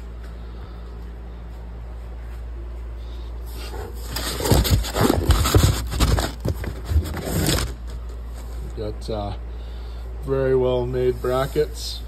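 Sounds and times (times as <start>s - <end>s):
cardboard box scraping and rustling: 3.6s - 8.7s.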